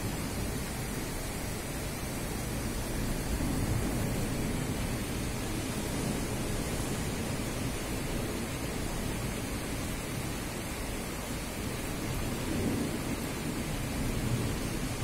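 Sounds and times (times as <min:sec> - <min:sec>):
thunder rumble: 0:00.0 - 0:09.4
rain falling: 0:00.0 - 0:15.0.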